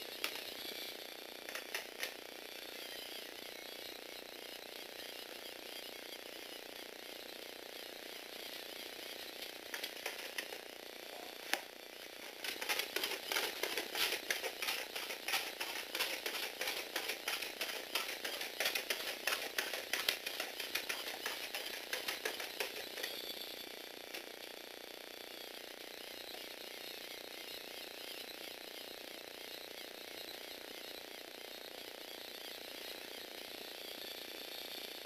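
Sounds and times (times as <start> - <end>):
faint motor whir: 0.0 - 35.0
plastic gears clattering: 1.4 - 2.2, 9.5 - 10.7, 12.2 - 23.3
feet tapping on wooden floor: 12.3 - 23.1.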